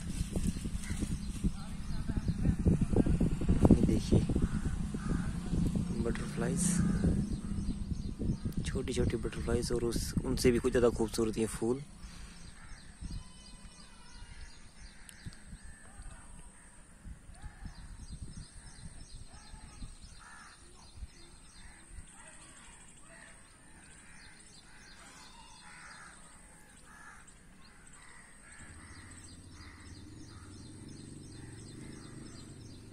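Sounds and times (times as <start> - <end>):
low hum: 0.0 - 13.7
low rumble: 0.0 - 20.2
harsh bird calls: 0.0 - 32.9.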